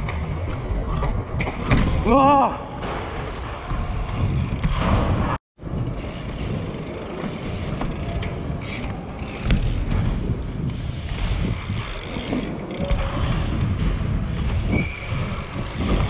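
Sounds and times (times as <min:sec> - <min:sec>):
bike hub ticking: 0:05.8 - 0:13.6.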